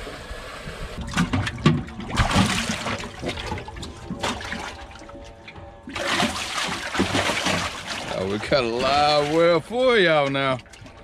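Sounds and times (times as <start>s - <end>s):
fish thrashing and splashing water: 1.0s - 11.0s.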